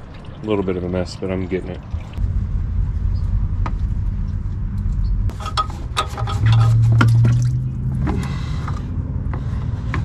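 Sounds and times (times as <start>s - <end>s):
low rumble: 1.8s - 9.9s
loud low hum: 2.2s - 5.6s.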